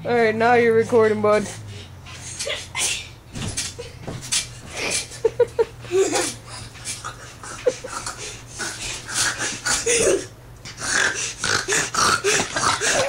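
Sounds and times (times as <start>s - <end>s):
boy panting: 1.4s - 3.2s, 4.6s - 10.4s, 11.0s - 13.0s
bed bouncing: 3.3s - 5.0s
boy giggling: 4.7s - 8.4s, 9.2s - 10.4s.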